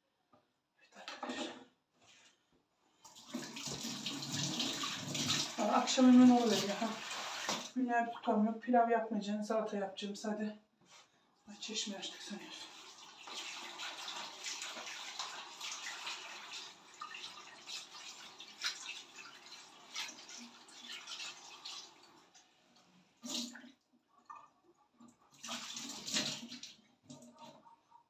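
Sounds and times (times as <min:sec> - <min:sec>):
water splashing: 0:03.2 - 0:07.8, 0:12.9 - 0:22.1.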